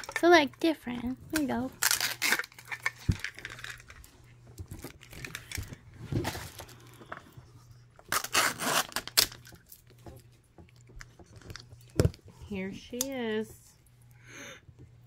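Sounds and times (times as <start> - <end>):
plastic wrapping tearing and crinkling: 1.3 - 6.9, 8.0 - 9.6.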